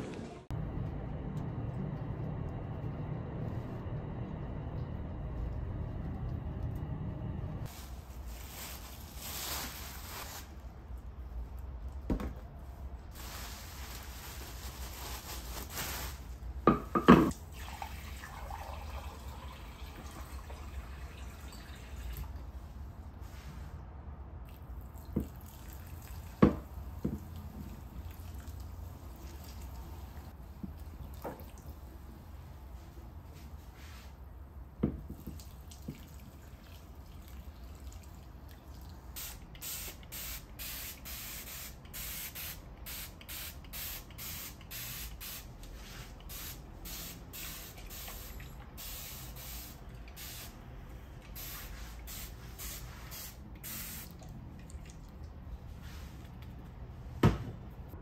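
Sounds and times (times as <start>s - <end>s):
water pouring into plant pot: 17.3s - 22.4s, 24.4s - 31.9s, 35.2s - 39.6s
spray bottle misting: 51.3s - 54.2s.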